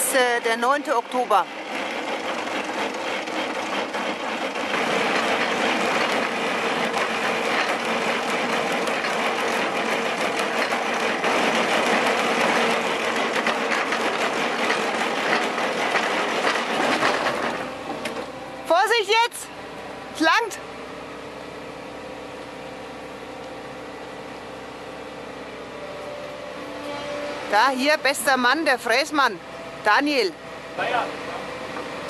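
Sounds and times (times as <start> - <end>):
cutter grinding on rock: 0.0 - 18.2
machine hum: 0.0 - 32.0.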